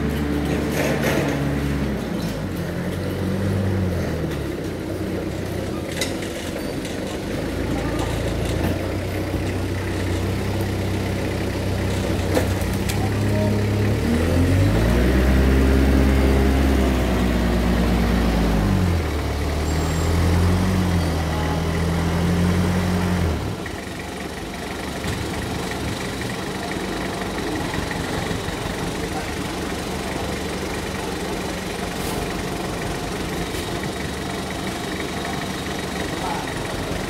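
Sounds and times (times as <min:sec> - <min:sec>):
forklift engine idling and revving: 0:00.0 - 0:37.0.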